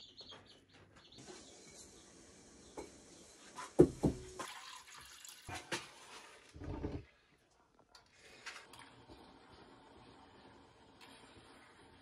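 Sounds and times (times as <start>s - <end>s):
water running: 1.2s - 7.4s
knocks: 3.8s - 4.3s.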